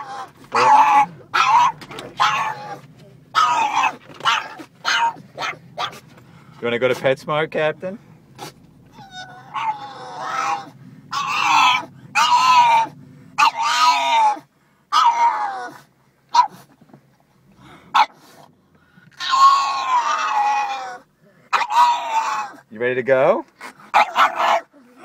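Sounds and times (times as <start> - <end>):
dog yelps: 0.0 - 6.0, 8.4 - 16.7, 17.9 - 18.3, 19.1 - 22.7, 23.9 - 25.0
dog whining: 0.0 - 6.1, 8.4 - 16.7, 19.1 - 22.7, 23.6 - 25.0.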